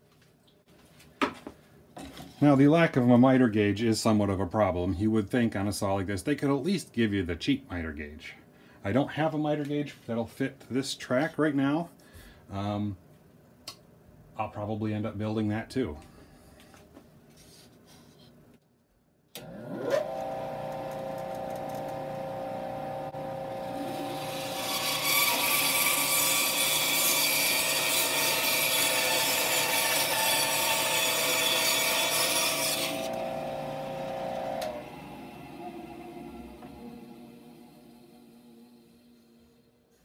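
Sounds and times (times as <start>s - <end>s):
bandsaw motor whine: 19.4s - 39.7s
saw blade cutting wood: 23.2s - 34.8s.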